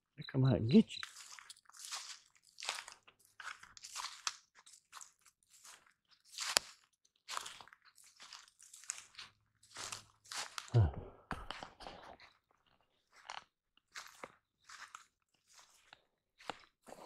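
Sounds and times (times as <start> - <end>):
footsteps crunching dry leaves: 1.0 - 10.8, 13.1 - 17.0.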